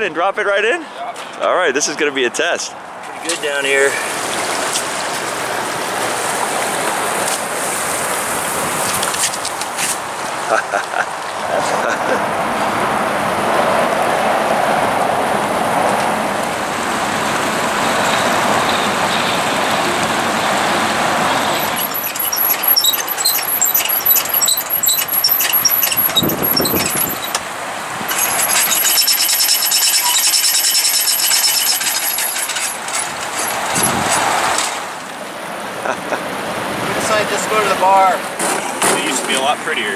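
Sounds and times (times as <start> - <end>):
high squeaks: 21.2 - 27.4, 28.1 - 34.3
hull squealing on trailer: 21.3 - 27.4, 28.1 - 32.8.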